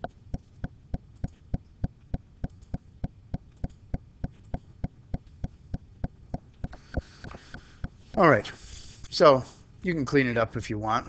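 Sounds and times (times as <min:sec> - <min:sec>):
steady clicking: 0:00.0 - 0:08.6
faint low hum: 0:00.0 - 0:11.0.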